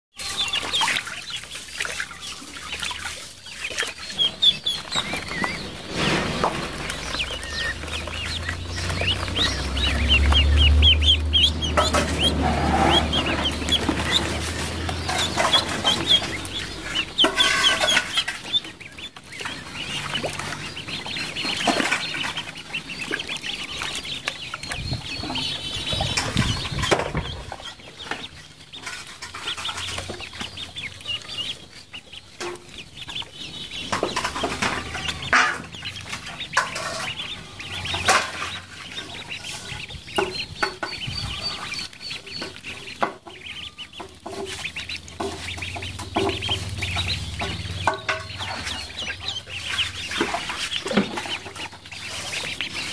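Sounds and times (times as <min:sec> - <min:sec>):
ducklings peeping: 0:00.1 - 0:52.9
water splashing: 0:00.2 - 0:52.9
wings flapping: 0:00.6 - 0:18.6.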